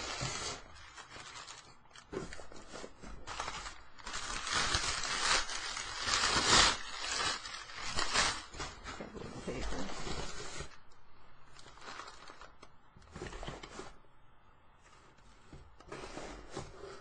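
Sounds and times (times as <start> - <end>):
cardboard box rustling and scraping: 13.1 - 14.0, 14.9 - 17.0.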